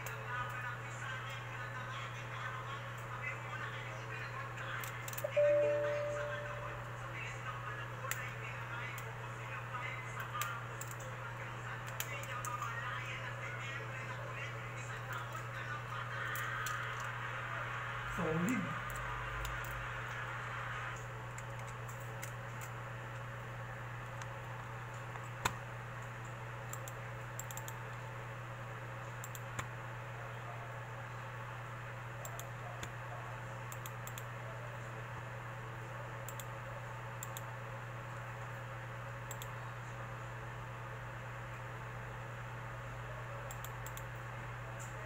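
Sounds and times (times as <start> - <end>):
low hum and hiss: 0.0 - 45.0
computer mouse clicks: 10.2 - 11.1, 11.8 - 12.7, 18.9 - 19.8, 20.9 - 22.8, 25.1 - 27.8, 29.2 - 29.7, 32.2 - 33.0, 33.7 - 34.3, 36.2 - 36.5, 37.2 - 37.5, 39.3 - 39.6, 43.5 - 44.1.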